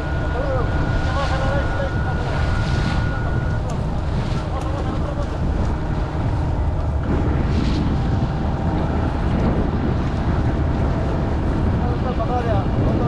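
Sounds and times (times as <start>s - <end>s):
boat motor running: 0.0s - 13.0s
wind buffeting microphone: 0.0s - 13.0s.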